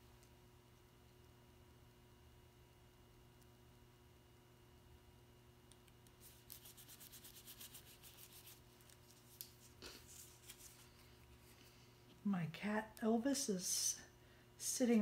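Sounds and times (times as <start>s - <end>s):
steady low hum: 0.0s - 15.0s
fingers rubbing cardstock: 6.2s - 8.6s
paper rustling: 6.2s - 11.6s.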